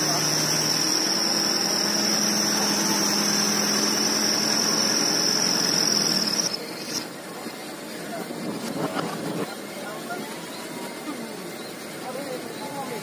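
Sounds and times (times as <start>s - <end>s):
hydraulic whine: 0.0s - 9.5s
truck engine hum: 0.0s - 13.0s.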